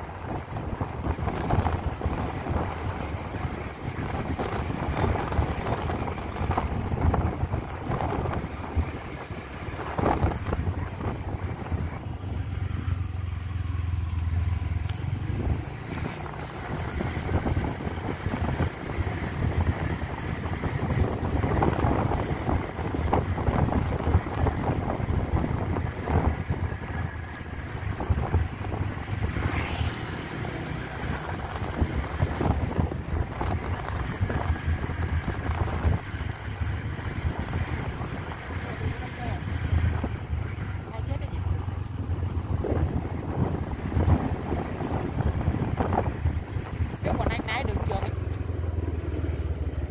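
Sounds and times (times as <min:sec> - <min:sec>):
wind buffeting microphone: 0:00.0 - 0:12.9, 0:15.3 - 0:49.3
motorbike rumble: 0:00.0 - 0:49.9
short high electronic beep: 0:09.6 - 0:16.5.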